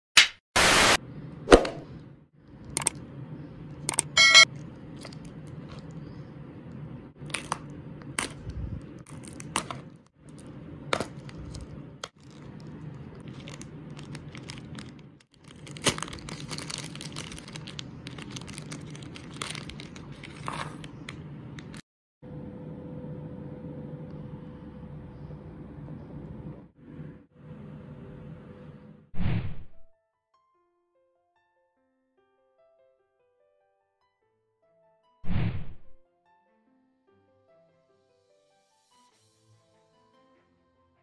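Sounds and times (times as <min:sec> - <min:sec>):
steady low hum: 0:01.0 - 0:15.2, 0:20.8 - 0:29.1
plastic bag rustling: 0:07.2 - 0:21.8
paper crinkling and tearing: 0:08.2 - 0:21.8.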